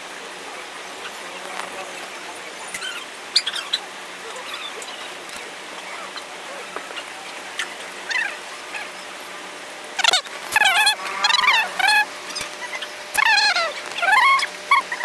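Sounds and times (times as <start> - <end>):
bird chirps: 1.0 - 5.2.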